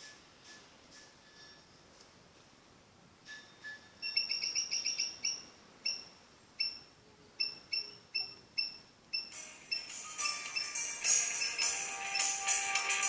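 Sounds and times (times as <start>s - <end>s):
short high electronic beeps: 7.4s - 12.4s.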